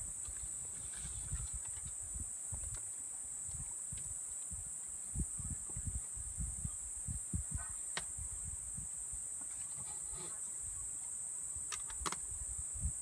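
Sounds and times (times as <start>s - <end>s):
insects droning: 0.0s - 13.0s
sharp clicks: 11.7s - 12.2s.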